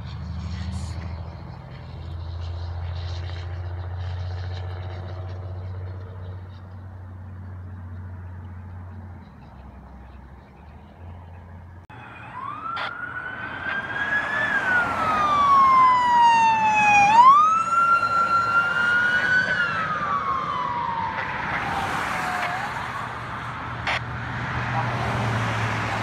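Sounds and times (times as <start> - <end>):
traffic noise: 0.0 - 26.0
siren wailing: 11.9 - 26.0.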